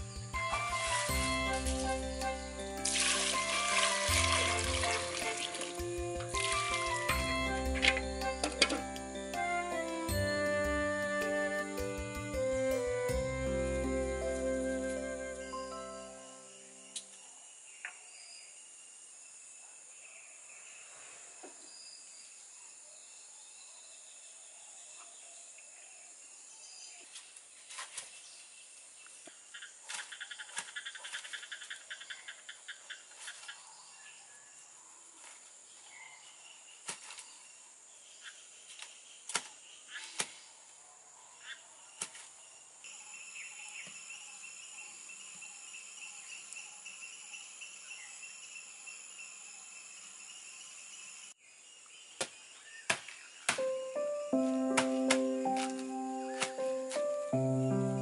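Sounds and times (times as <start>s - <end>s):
insect chorus: 0.0s - 58.0s.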